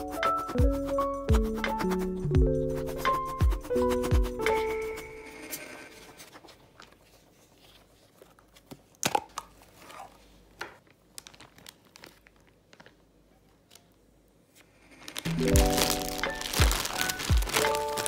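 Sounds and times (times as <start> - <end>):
plastic zip bag crinkling: 11.0 - 13.0, 14.9 - 18.0.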